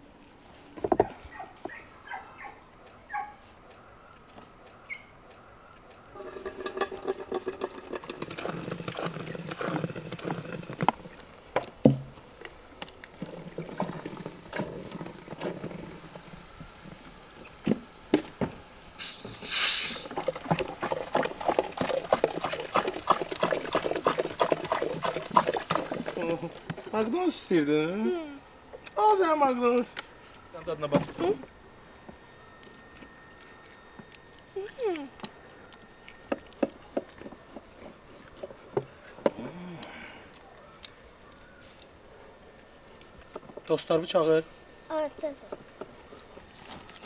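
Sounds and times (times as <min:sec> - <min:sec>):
brief loud hiss: 0:19.0 - 0:20.1.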